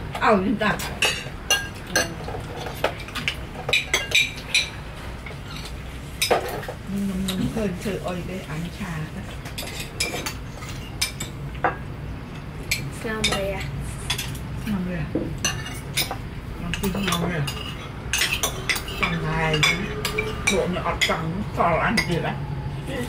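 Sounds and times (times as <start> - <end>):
cutlery clinking on plates: 0.9 - 4.8, 16.8 - 21.2.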